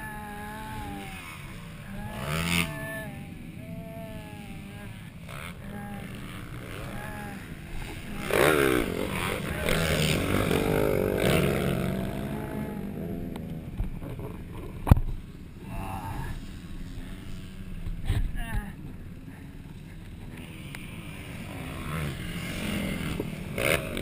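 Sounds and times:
dirt bike engine revving past: 0.0s - 14.8s, 15.6s - 18.4s, 20.3s - 24.0s.

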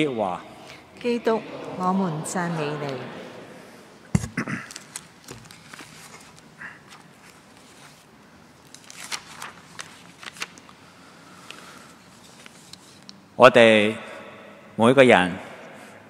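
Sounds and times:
book knocking on lectern: 4.1s - 4.4s
paper rustling and clicks: 4.2s - 8.0s, 8.6s - 10.8s.

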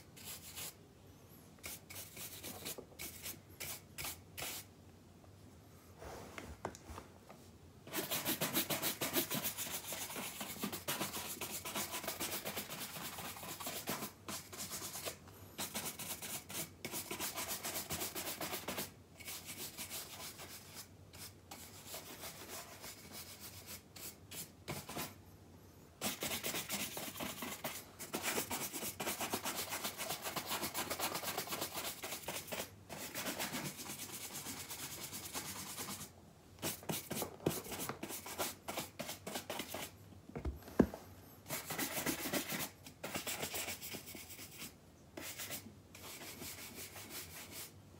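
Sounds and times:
shoe brush scratching: 7.9s - 25.2s.

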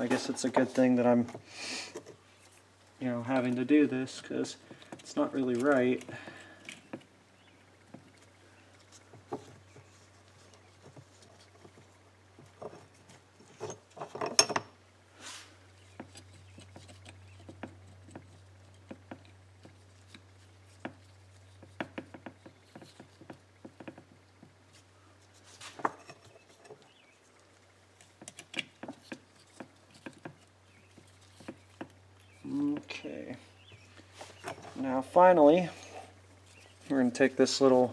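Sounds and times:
low steady hum: 0.0s - 37.9s
rubber gloves rubbing: 15.1s - 37.7s.

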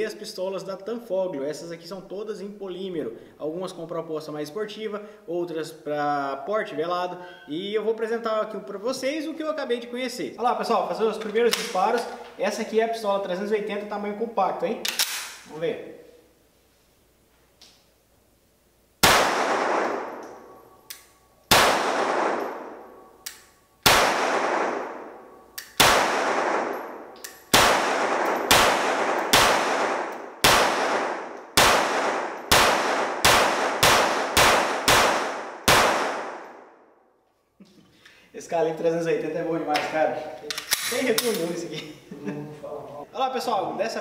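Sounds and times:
pistol shots echoing indoors: 19.0s - 37.2s.

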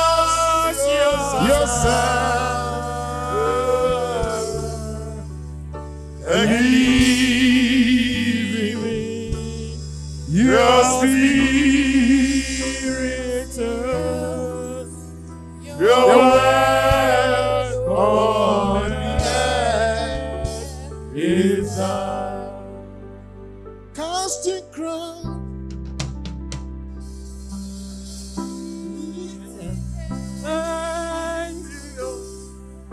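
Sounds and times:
person singing: 0.0s - 5.3s, 6.2s - 15.0s, 15.6s - 22.9s, 28.6s - 32.6s
sustained low chords: 0.0s - 24.3s.

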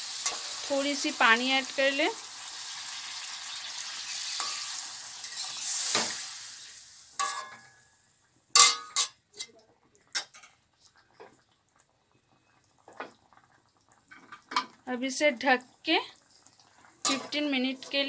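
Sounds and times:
water sizzling in hot oil: 0.0s - 9.2s, 12.1s - 18.0s
metal clinks against pan: 8.6s - 9.2s.

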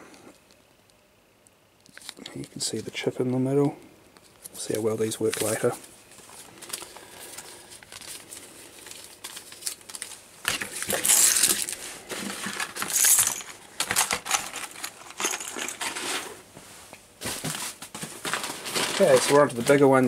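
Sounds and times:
rustling and scraping: 4.2s - 20.0s.

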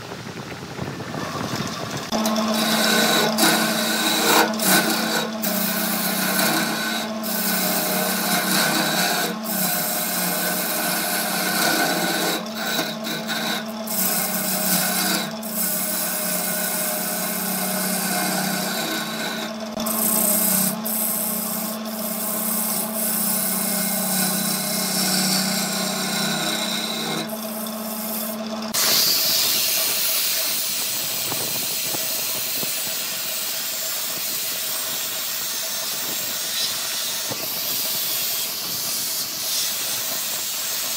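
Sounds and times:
wood lathe humming: 1.1s - 40.9s
turning tool scraping wood: 1.2s - 40.9s
sanding pad hissing: 25.9s - 40.9s.

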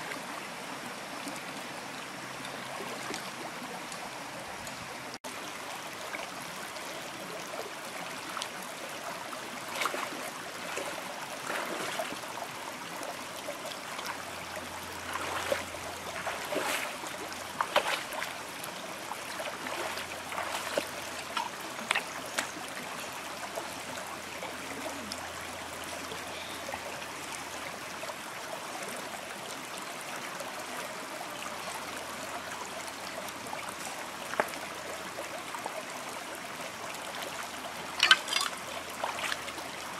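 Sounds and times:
stream running over rocks: 0.0s - 39.9s
person wading splashes: 9.6s - 12.2s, 14.9s - 18.4s, 19.2s - 22.6s, 38.0s - 39.5s.

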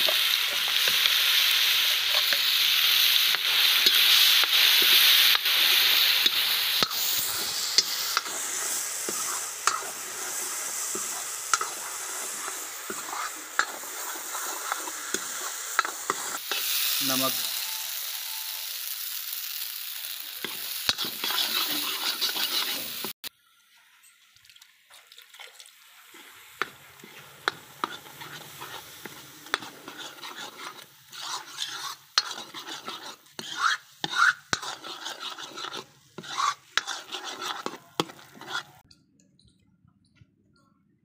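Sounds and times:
spoon scraping paste in wok: 0.0s - 16.6s, 20.4s - 23.2s, 26.1s - 38.9s
hot pan sizzling: 0.0s - 23.3s, 24.6s - 38.8s.

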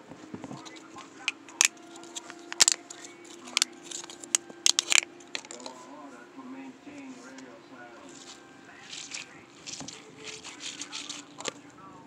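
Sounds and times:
faint steady hum: 0.0s - 12.0s
plastic toys clicking: 0.4s - 5.8s, 8.1s - 11.6s.

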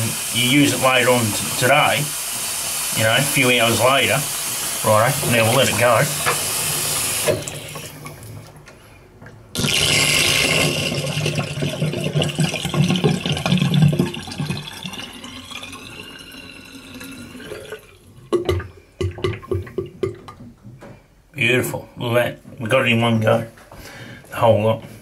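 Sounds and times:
water draining down plughole: 0.0s - 8.5s, 9.6s - 20.3s
drain gurgling and sucking: 0.0s - 8.9s, 9.6s - 20.2s.

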